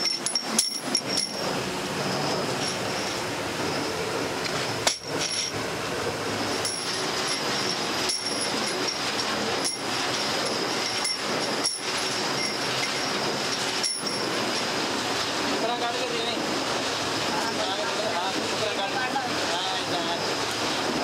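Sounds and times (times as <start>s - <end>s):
brass pins clinking: 0.0s - 1.6s, 4.8s - 5.6s, 6.5s - 14.7s
workshop noise: 0.0s - 21.0s.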